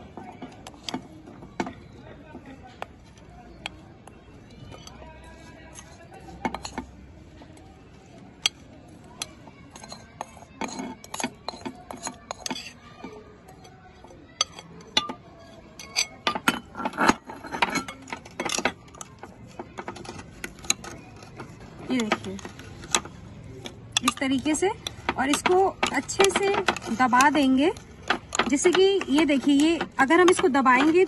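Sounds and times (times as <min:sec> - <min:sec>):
spoon scraping a dish: 0:02.8 - 0:07.0, 0:09.2 - 0:31.0
spoon clinking against glass jar: 0:04.6 - 0:07.0, 0:09.2 - 0:19.3.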